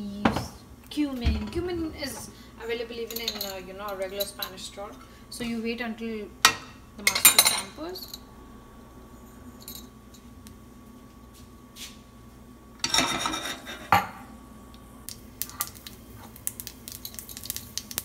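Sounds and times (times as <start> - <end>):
seeds crackling in oil: 15.1 - 18.0.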